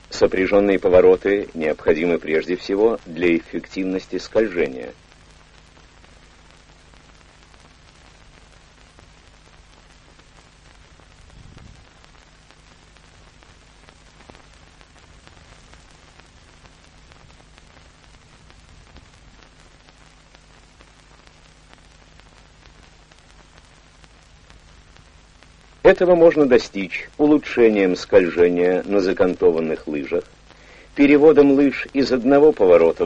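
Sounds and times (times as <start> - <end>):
film soundtrack hiss and hum: 0.0 - 33.0
faint clicks: 5.0 - 25.8.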